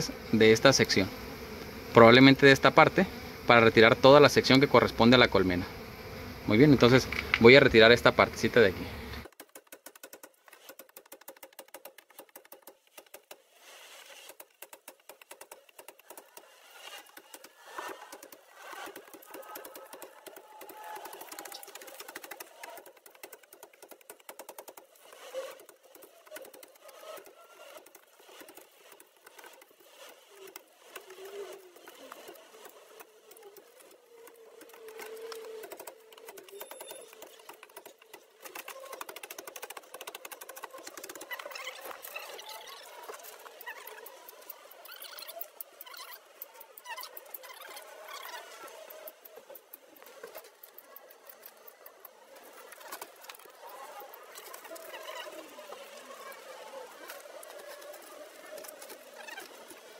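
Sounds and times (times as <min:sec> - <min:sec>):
honeycomb crackling and clicking: 0:14.2 - 0:59.9.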